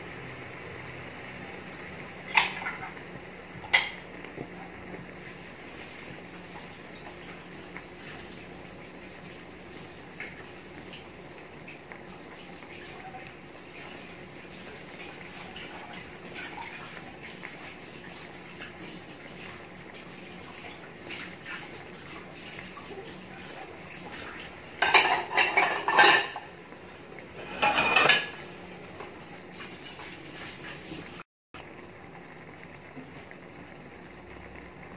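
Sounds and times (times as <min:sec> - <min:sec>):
sauce simmering in a wok: 0:00.0 - 0:34.9
dishes and cutlery clattering: 0:02.3 - 0:02.9, 0:24.8 - 0:26.5, 0:27.4 - 0:28.4.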